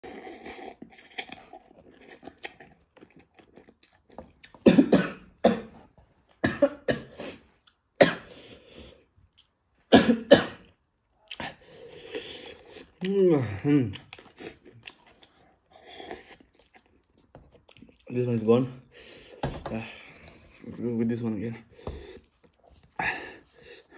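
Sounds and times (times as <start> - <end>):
quiet eating sounds: 0.0 - 9.9, 10.6 - 23.9
man coughing hard: 4.6 - 5.7, 6.4 - 7.2, 9.9 - 10.6.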